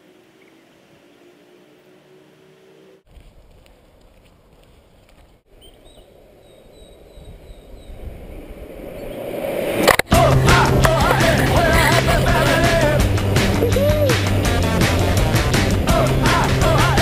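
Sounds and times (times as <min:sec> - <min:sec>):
birds chirping: 0:00.0 - 0:01.6, 0:05.5 - 0:08.1
longboard wheels on asphalt: 0:00.0 - 0:17.0
loud music: 0:10.1 - 0:17.0.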